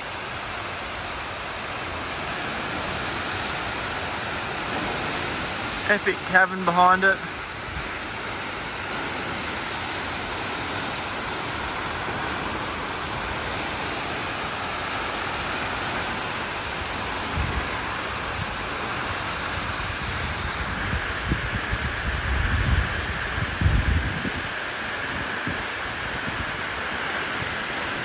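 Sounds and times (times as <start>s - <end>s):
waterfall rushing: 0.0s - 28.0s
wind gusts on microphone: 17.1s - 26.8s.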